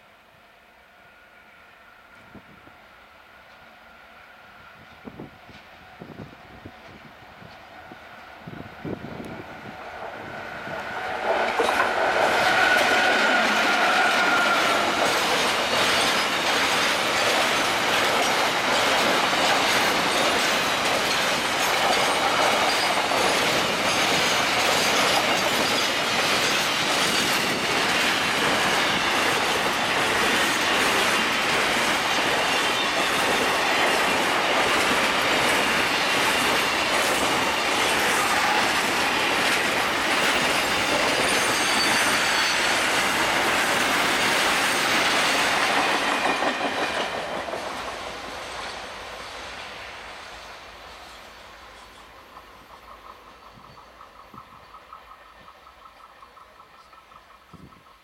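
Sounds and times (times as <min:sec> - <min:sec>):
train wheels clickety-clack: 0:04.8 - 0:07.9, 0:08.5 - 0:58.0
high wheel squeal: 0:10.7 - 0:16.5, 0:22.0 - 0:27.6, 0:37.4 - 0:43.2.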